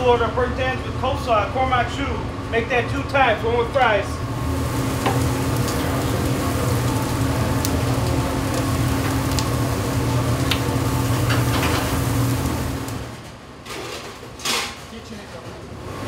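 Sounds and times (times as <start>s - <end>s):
steady low hum: 0.0s - 13.7s
chicken sizzling on a grill: 4.3s - 13.2s.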